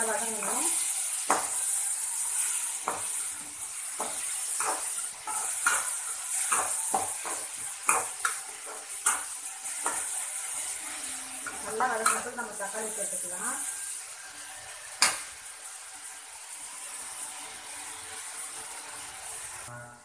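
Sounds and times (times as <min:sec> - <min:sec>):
vegetables sizzling in oil: 0:00.0 - 0:19.8.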